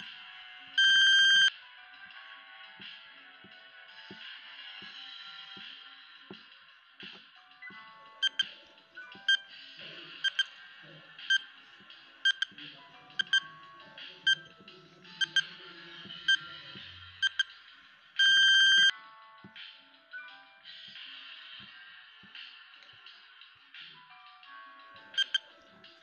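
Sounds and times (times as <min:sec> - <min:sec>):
soft background music: 0:00.0 - 0:26.0
loud electronic beep: 0:00.8 - 0:01.5
timer ticking: 0:00.8 - 0:01.5, 0:07.7 - 0:08.5, 0:10.2 - 0:10.5, 0:12.2 - 0:12.6, 0:13.2 - 0:13.6, 0:15.2 - 0:15.6, 0:17.2 - 0:17.5, 0:18.2 - 0:18.9, 0:25.1 - 0:25.5.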